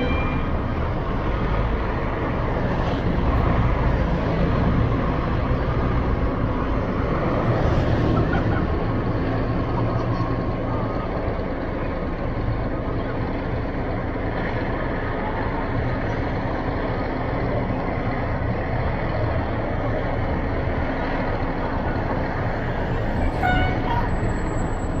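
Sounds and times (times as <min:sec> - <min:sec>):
short high-pitched squeal: 0:00.0 - 0:00.6
diesel truck engine running: 0:00.0 - 0:25.0
passing vehicle: 0:00.0 - 0:25.0.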